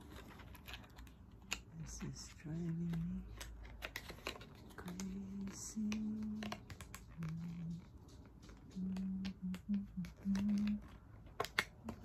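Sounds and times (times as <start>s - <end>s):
person humming low notes: 7.2s - 7.8s, 8.7s - 10.9s
plastic packaging clicks and taps: 8.2s - 12.0s.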